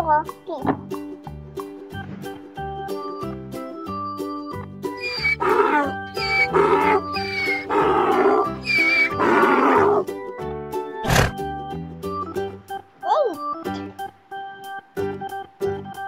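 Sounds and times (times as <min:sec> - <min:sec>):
children's music with steady beat: 0:00.0 - 0:16.0
donkey braying: 0:05.0 - 0:10.1.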